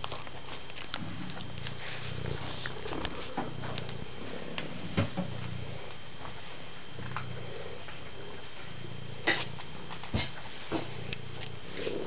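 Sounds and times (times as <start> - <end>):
wet clicks of cat eating: 0.0 - 1.8
cat purring: 0.8 - 12.0.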